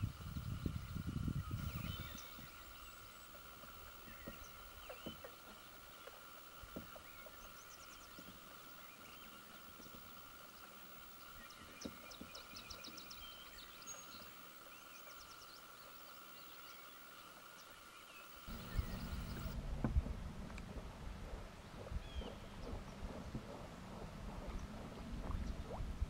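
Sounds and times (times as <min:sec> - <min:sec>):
birds singing high trills: 0:00.4 - 0:19.6.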